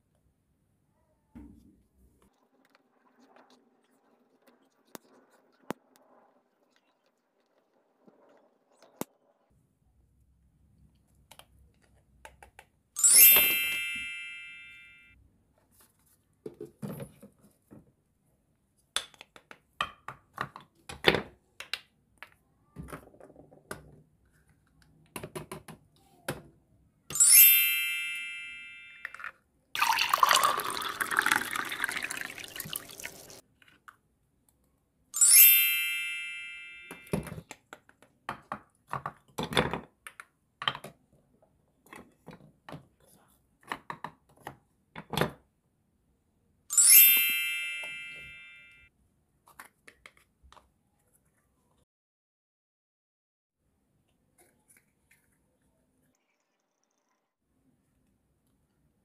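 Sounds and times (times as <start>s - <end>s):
electronic chime: 13.0s - 15.2s, 27.2s - 29.0s, 35.2s - 37.1s, 46.7s - 48.9s
water running: 29.8s - 33.4s.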